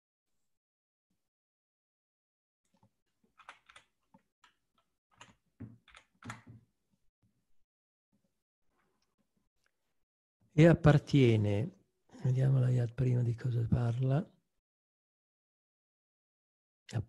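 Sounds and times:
keyboard and mouse clicks: 0:02.7 - 0:06.6.

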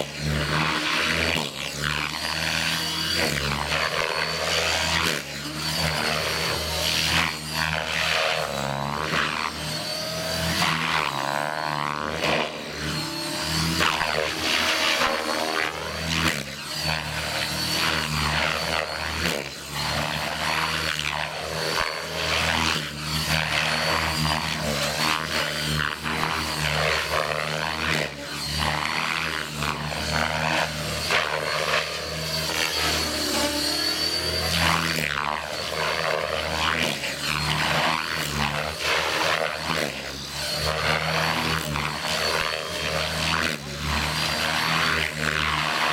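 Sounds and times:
electric motor whine: 0:00.0 - 0:45.9
helicopter rotor whoosh: 0:00.0 - 0:45.9.

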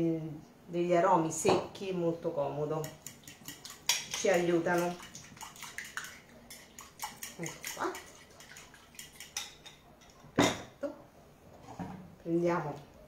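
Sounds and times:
spoon stirring in ceramic bowl: 0:02.7 - 0:10.4.

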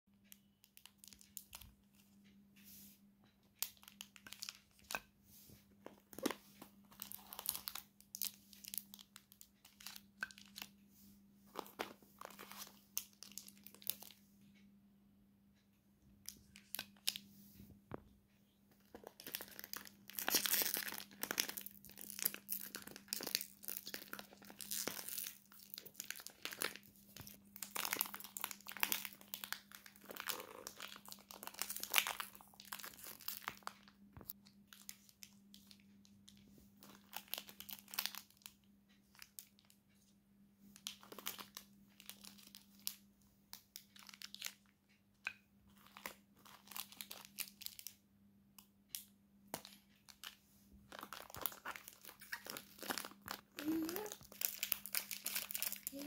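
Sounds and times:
plastic wrappers crinkling: 0:03.6 - 0:05.1, 0:05.8 - 0:10.8, 0:11.5 - 0:14.2, 0:18.8 - 0:39.8, 0:40.8 - 0:44.7, 0:45.7 - 0:48.0, 0:48.9 - 0:56.0.

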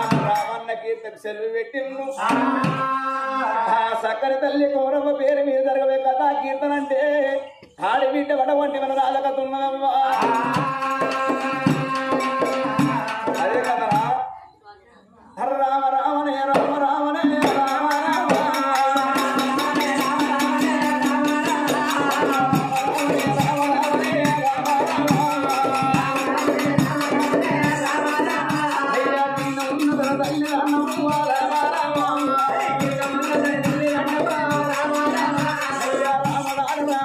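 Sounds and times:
drum beat: 0:00.0 - 0:00.5, 0:10.2 - 0:14.2, 0:16.5 - 0:37.0
rattling percussion: 0:00.0 - 0:00.7, 0:10.0 - 0:14.2, 0:16.5 - 0:37.0
folk singing: 0:01.8 - 0:14.4, 0:15.4 - 0:37.0.

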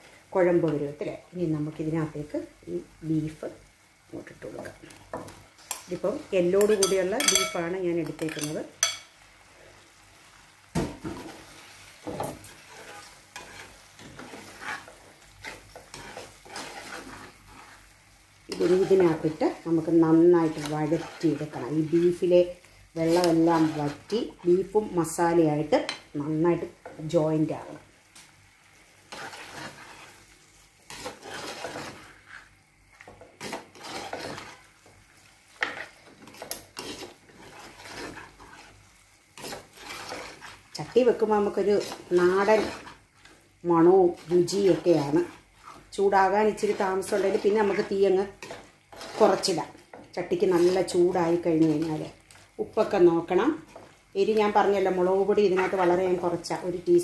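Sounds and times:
faint sizzle: 0:00.0 - 0:57.0
metal spoon scraping a pot: 0:06.6 - 0:07.6, 0:12.2 - 0:17.8, 0:18.5 - 0:19.4, 0:20.4 - 0:22.3, 0:29.1 - 0:30.2, 0:30.9 - 0:32.5, 0:33.4 - 0:34.6, 0:35.6 - 0:38.8, 0:39.4 - 0:43.0, 0:46.5 - 0:49.7, 0:50.4 - 0:52.1, 0:54.9 - 0:56.3.

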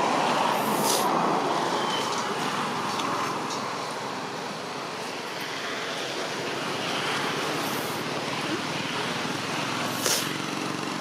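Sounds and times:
outdoor background rush: 0:00.0 - 0:11.0.

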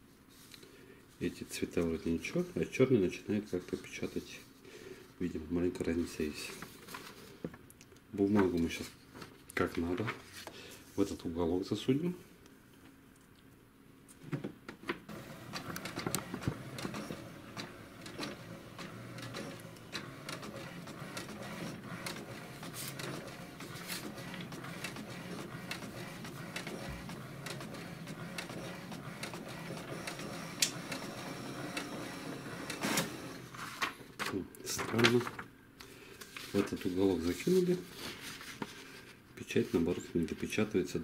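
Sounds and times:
printer clicks: 0:15.1 - 0:33.4
printer motor hum: 0:15.1 - 0:33.6
inkjet printer printing: 0:15.1 - 0:33.8.

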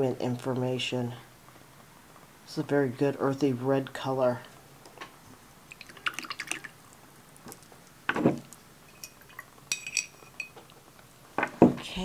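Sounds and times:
water splashes and drips: 0:05.7 - 0:07.7
brush clinking against glass: 0:08.9 - 0:10.6.

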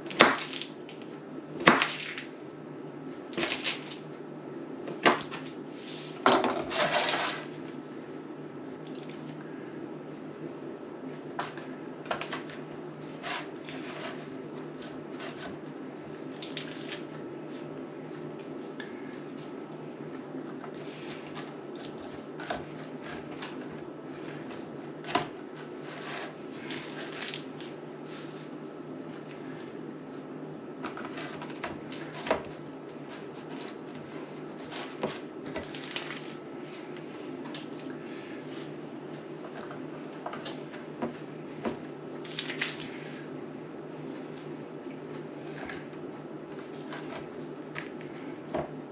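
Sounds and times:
dough handling noises: 0:00.0 - 0:02.4, 0:04.8 - 0:48.9
dough squishing: 0:00.0 - 0:02.4, 0:11.1 - 0:29.8
steady low hum: 0:00.0 - 0:48.9.

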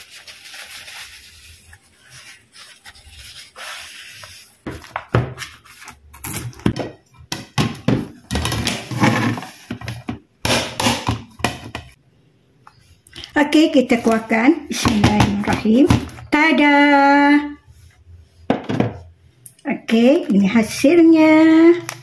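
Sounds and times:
tissue rubbing on knife blade: 0:00.0 - 0:04.6.

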